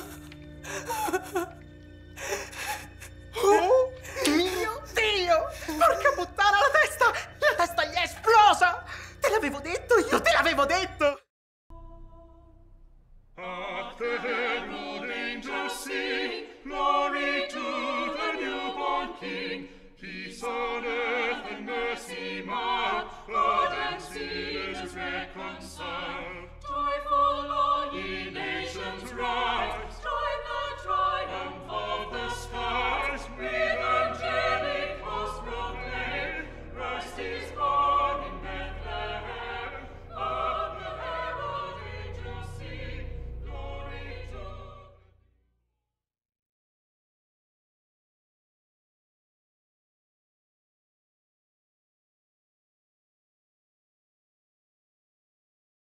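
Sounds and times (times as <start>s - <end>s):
choir singing: 0.0s - 12.6s, 13.4s - 45.2s
low bass accompaniment: 37.7s - 44.9s.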